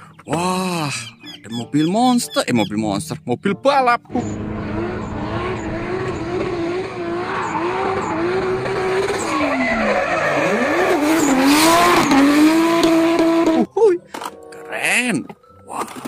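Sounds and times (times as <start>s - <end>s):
tyres skidding and squealing: 4.0s - 13.6s
car engine revving high: 4.1s - 13.7s.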